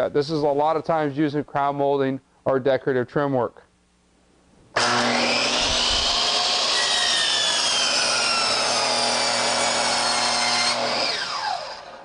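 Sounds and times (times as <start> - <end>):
miter saw cutting wood: 4.8 - 12.0.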